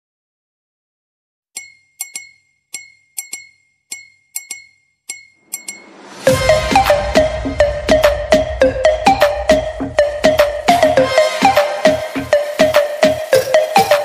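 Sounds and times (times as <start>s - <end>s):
glassy ringing clinks: 1.6s - 5.9s
rising swell: 5.4s - 13.9s
electronic dance music: 5.4s - 14.0s.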